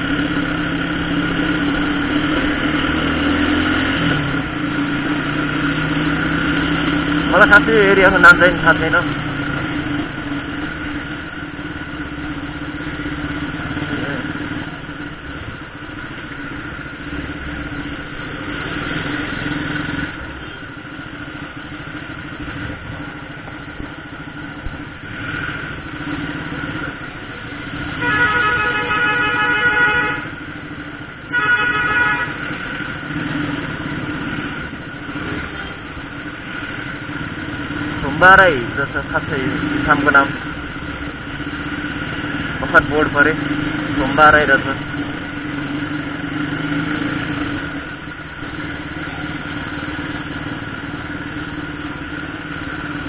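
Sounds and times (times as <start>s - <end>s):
motorcycle engine running: 0.0s - 53.0s
vehicle horn: 27.9s - 30.4s, 31.3s - 32.7s.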